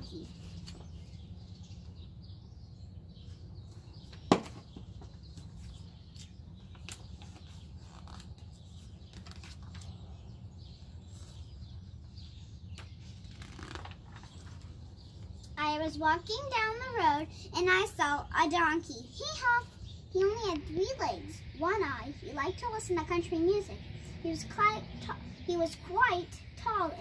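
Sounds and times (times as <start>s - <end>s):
book pages turning: 0.3s - 1.0s, 5.3s - 10.1s, 12.8s - 15.3s.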